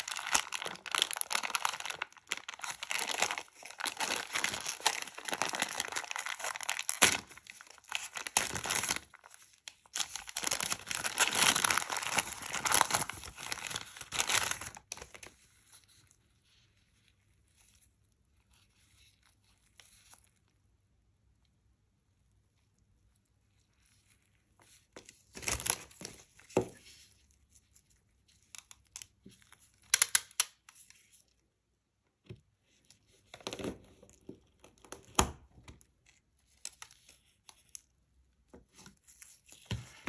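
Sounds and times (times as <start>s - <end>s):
plastic wrapper crinkling and tearing: 0.0s - 16.2s, 23.5s - 31.4s, 33.1s - 40.0s.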